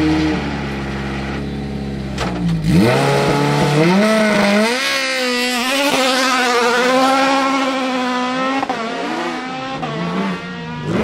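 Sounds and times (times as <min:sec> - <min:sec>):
race car engine revving: 0:00.0 - 0:11.0
race car accelerating away: 0:02.4 - 0:11.0.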